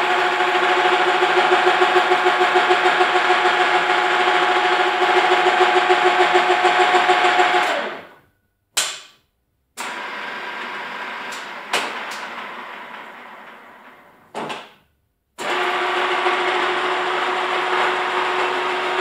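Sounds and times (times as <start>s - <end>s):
machine hum: 0.0s - 8.3s.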